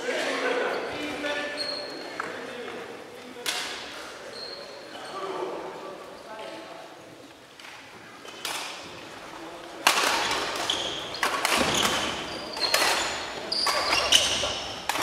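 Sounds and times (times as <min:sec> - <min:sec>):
shoes squeaking on court: 0:04.3 - 0:05.3, 0:10.2 - 0:14.9
rackets striking shuttlecock: 0:09.8 - 0:15.0.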